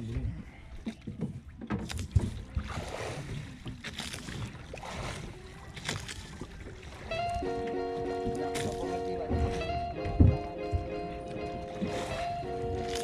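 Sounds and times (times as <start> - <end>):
water splashing against boat: 0.0 - 13.0
knocks on boat hull: 10.2 - 10.8.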